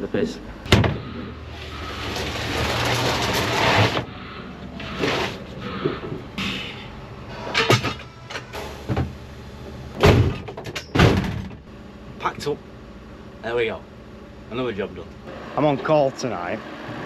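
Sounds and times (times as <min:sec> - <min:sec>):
tools clunking and knocking: 0:07.5 - 0:09.1.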